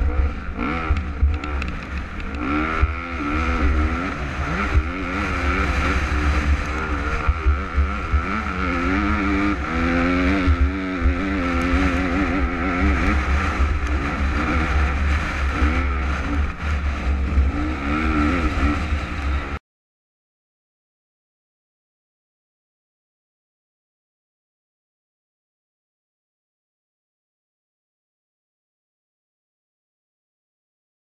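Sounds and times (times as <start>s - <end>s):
motocross bike engine revving: 0.0s - 19.6s.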